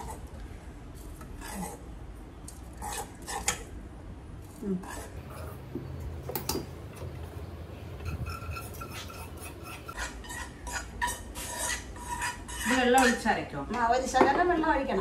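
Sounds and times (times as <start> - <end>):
metal spoon scraping pan: 7.9 - 13.3.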